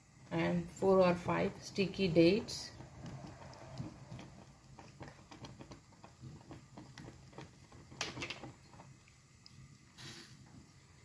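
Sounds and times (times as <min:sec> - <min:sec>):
pot clatter: 0:02.8 - 0:09.0.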